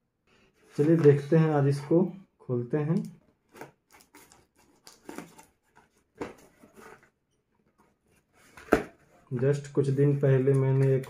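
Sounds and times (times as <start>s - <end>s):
tape and cardboard rustling: 3.2s - 11.0s.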